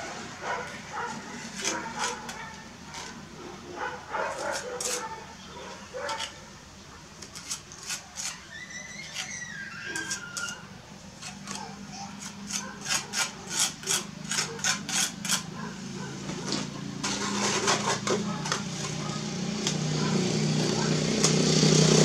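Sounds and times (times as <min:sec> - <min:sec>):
trowel scraping brick and mortar: 0:01.1 - 0:03.2, 0:04.3 - 0:05.2, 0:05.9 - 0:06.4, 0:07.2 - 0:19.1.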